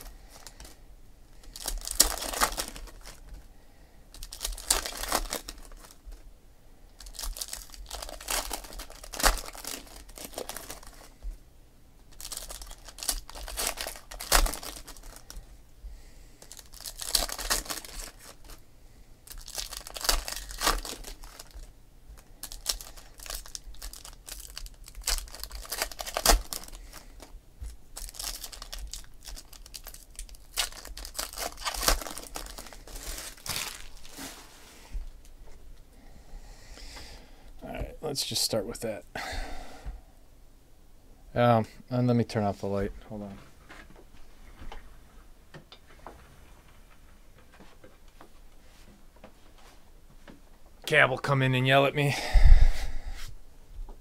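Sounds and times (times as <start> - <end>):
foil wrappers crinkling: 0.0 - 0.8, 1.4 - 3.5, 4.1 - 6.2, 7.0 - 11.3, 12.1 - 15.5, 16.4 - 18.6, 19.2 - 35.4.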